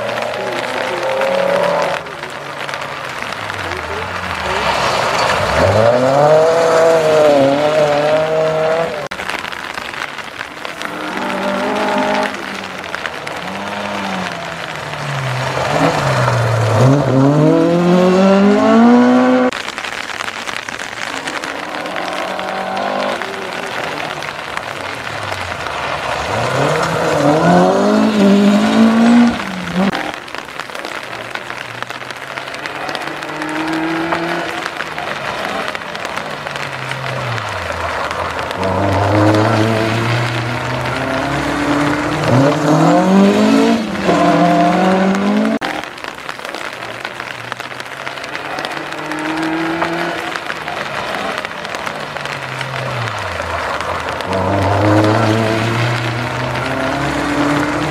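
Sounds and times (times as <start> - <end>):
rally car engine accelerating: 0.0 - 9.1, 10.7 - 19.5, 21.1 - 30.0, 32.1 - 45.6, 48.9 - 57.9.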